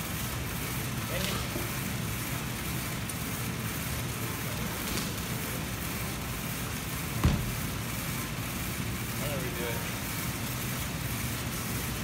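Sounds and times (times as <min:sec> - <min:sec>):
gym room noise: 0:00.0 - 0:12.0
person landing on rubber floor: 0:07.2 - 0:07.8.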